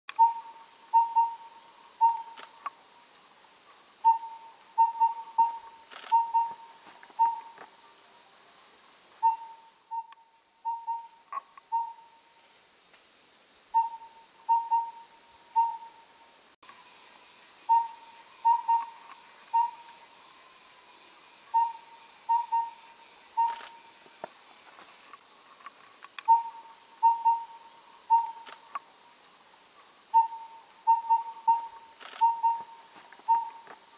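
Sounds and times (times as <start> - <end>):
high insect hiss: 0.1 - 33.9
owlet whistled hoots: 7.2 - 7.5, 13.8 - 15.0, 33.3 - 33.6.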